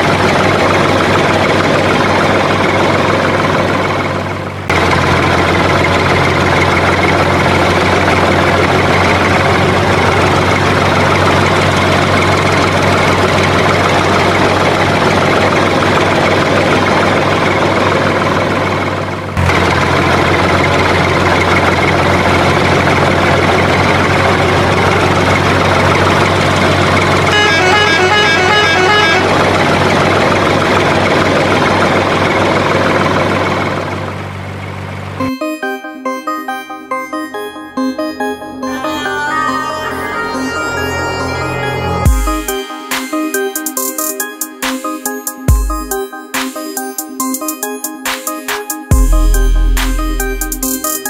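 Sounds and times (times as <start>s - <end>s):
truck engine rumbling: 0.0s - 35.3s, 37.1s - 43.0s, 48.9s - 51.0s
horn short toots: 27.3s - 29.5s.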